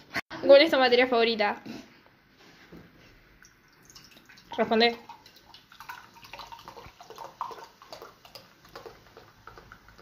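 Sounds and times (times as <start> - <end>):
soda pouring into mug: 3.4 - 10.0.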